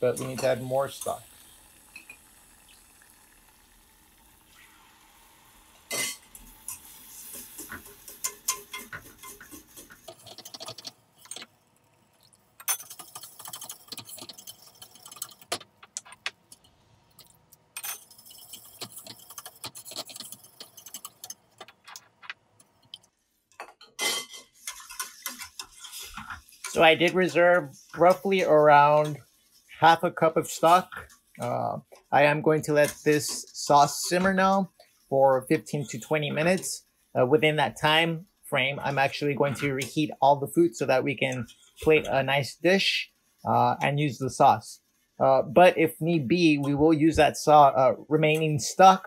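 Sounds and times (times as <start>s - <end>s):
whisk scraping a saucepan: 6.7s - 11.4s, 18.0s - 21.3s, 24.3s - 36.7s.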